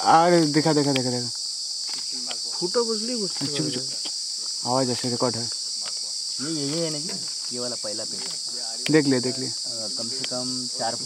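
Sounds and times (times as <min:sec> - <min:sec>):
insects droning: 0:00.0 - 0:11.0
people talking quietly: 0:00.0 - 0:11.0.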